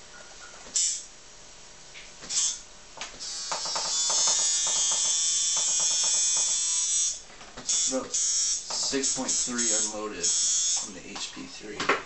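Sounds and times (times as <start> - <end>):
tattoo machine buzzing: 0.8 - 1.1, 2.2 - 11.0.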